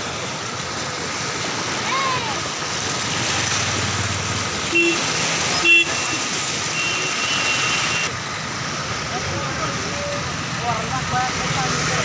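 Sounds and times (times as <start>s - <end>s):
river rushing: 0.0s - 12.0s
vehicle horn toots: 4.7s - 8.1s.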